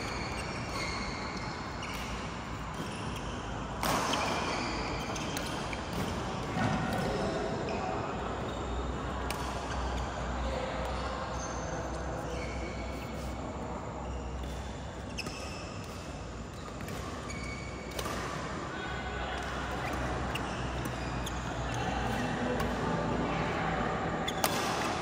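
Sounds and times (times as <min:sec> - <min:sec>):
shoes squeaking on court: 0:00.0 - 0:10.2, 0:10.9 - 0:18.5, 0:19.7 - 0:23.0
racket hitting shuttlecock: 0:01.9 - 0:07.2, 0:17.8 - 0:18.5, 0:24.3 - 0:25.0.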